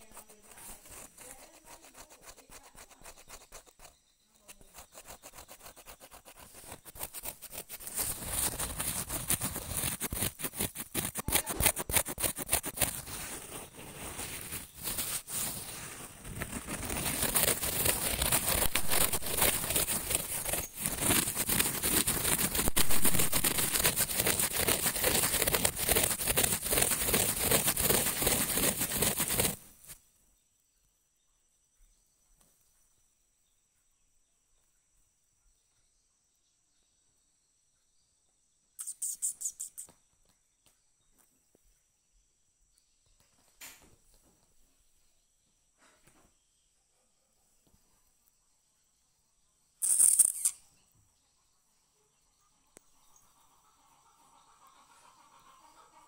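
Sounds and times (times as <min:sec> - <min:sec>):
dense crackling and rubbing: 0:00.0 - 0:04.0, 0:04.6 - 0:30.0.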